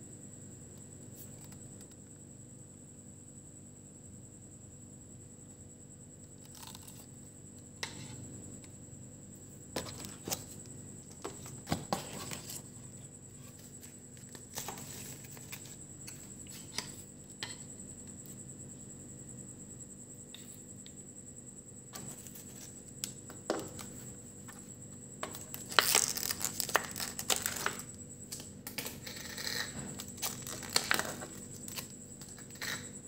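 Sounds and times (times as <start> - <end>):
paper and plastic packaging rustling: 11.2 - 12.7.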